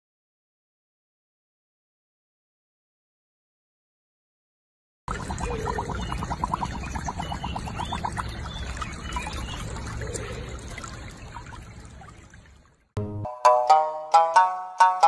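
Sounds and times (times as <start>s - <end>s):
water sloshing and trickling: 5.1s - 13.0s.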